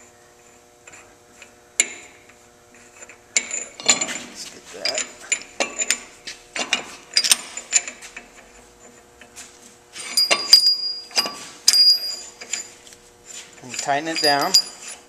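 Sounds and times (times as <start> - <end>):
metal clinks and scrapes: 2.8 - 9.0, 9.9 - 15.0.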